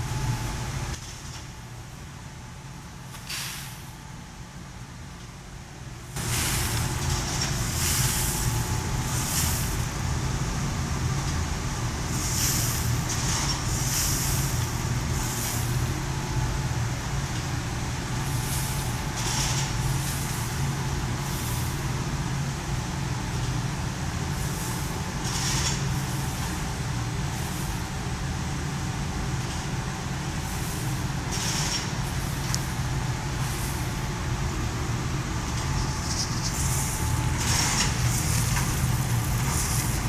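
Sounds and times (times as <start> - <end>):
coffee roaster fans humming: 0.0 - 40.0.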